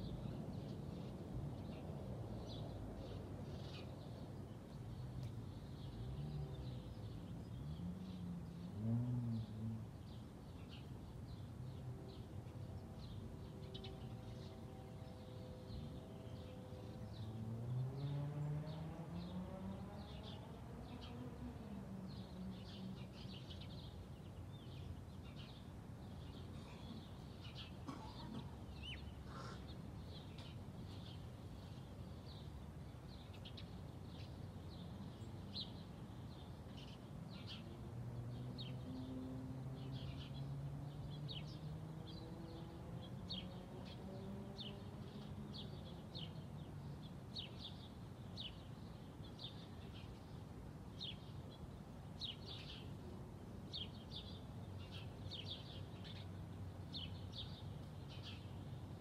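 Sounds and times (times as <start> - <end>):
small birds chirping: 0.0 - 59.0
distant vehicle accelerating: 7.6 - 9.8, 17.2 - 21.7.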